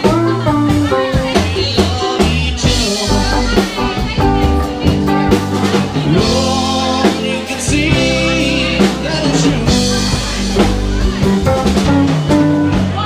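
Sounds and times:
drum hits: 0.0s - 13.0s
electric guitars: 0.0s - 13.0s.

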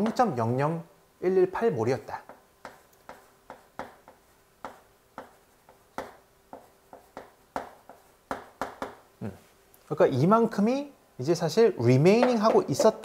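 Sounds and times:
chalk tapping on chalkboard: 2.2s - 9.1s, 12.2s - 13.0s.

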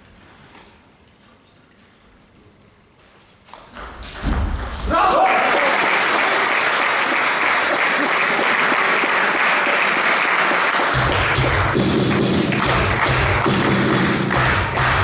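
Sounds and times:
spectators applauding: 5.0s - 15.0s.

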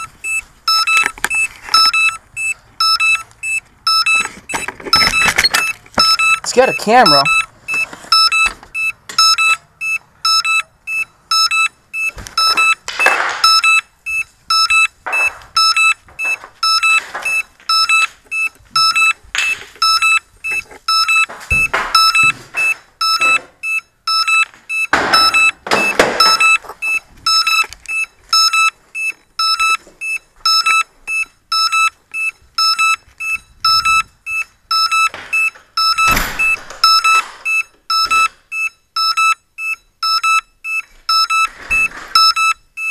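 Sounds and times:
drone beeper high beeps: 0.0s - 12.8s, 19.8s - 38.3s.

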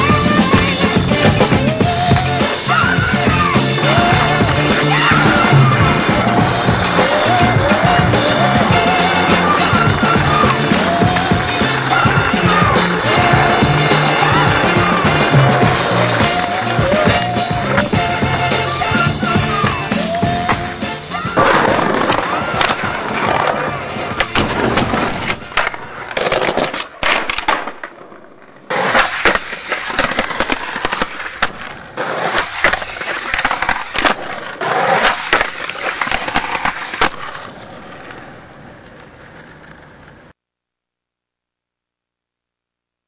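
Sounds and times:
skateboard wheels rolling on pavement: 0.0s - 40.4s
skateboard popping and landing clacks: 21.4s - 40.3s.

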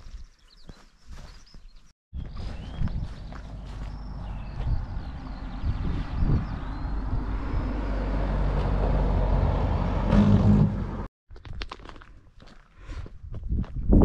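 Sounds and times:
footsteps on a lane: 0.0s - 5.7s
car driving past: 4.0s - 11.1s.

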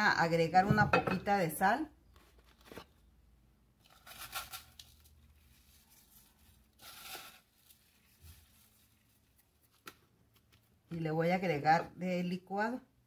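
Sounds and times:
salt sprinkling rustles: 3.8s - 9.7s.

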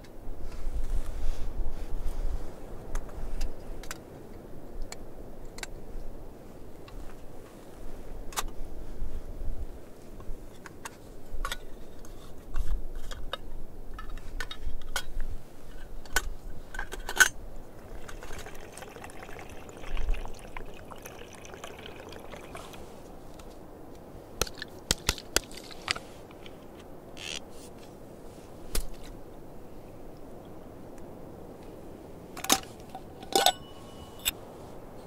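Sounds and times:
wind rumbling on microphone: 0.1s - 10.6s, 11.2s - 35.0s
liquid pouring: 17.7s - 23.1s.

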